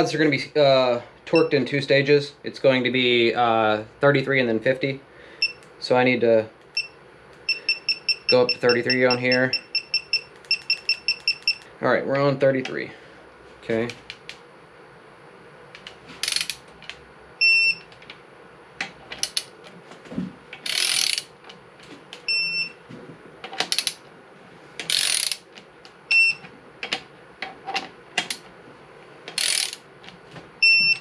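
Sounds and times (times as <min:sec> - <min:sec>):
short high beep: 0:07.5 - 0:11.6
torque wrench ratcheting: 0:16.2 - 0:16.6, 0:20.6 - 0:21.3, 0:23.7 - 0:24.0, 0:24.9 - 0:25.4, 0:29.3 - 0:29.8.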